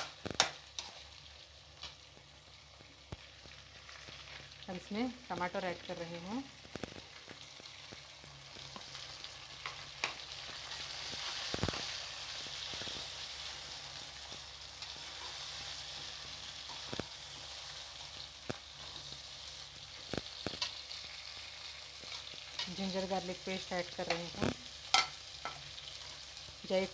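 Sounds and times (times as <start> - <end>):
food sizzling in oil: 0.0 - 26.9.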